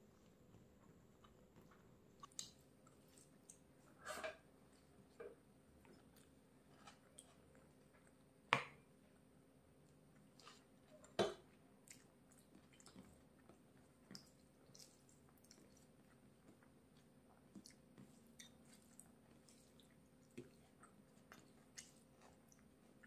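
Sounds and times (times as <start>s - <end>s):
person chewing food: 0.2s - 3.8s, 9.8s - 23.0s.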